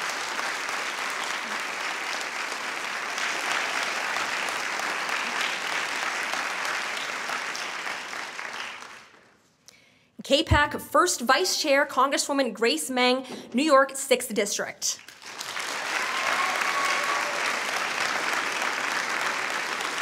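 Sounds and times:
audience applauding: 0:00.0 - 0:09.3, 0:15.0 - 0:20.0.

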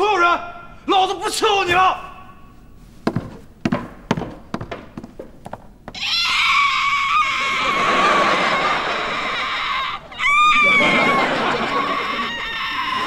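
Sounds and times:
long high-pitched cry: 0:06.0 - 0:13.0.

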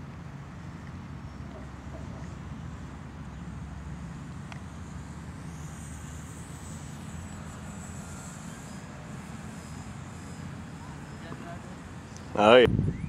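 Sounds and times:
model plane motor whine: 0:00.0 - 0:13.0
wind rumble on microphone: 0:12.4 - 0:13.0.

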